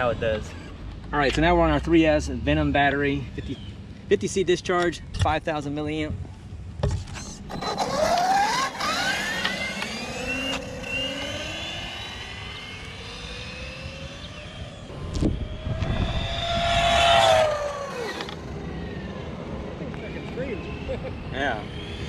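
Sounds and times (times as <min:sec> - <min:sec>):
electric motor whining: 0:07.2 - 0:22.0.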